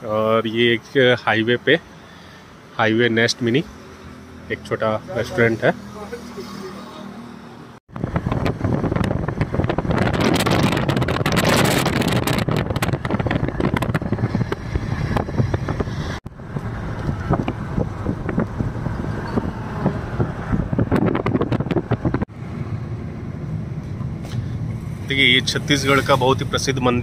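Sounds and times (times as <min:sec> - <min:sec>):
car road noise: 0:00.0 - 0:27.0
wind buffeting microphone: 0:07.9 - 0:26.7.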